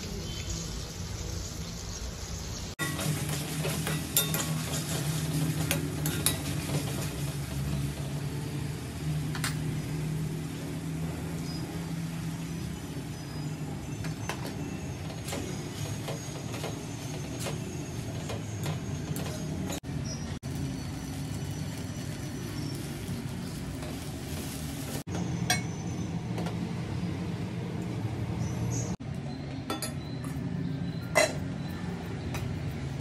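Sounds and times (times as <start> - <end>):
metal utensils clinking on pots: 2.8 - 8.0, 9.3 - 9.8, 29.7 - 32.6.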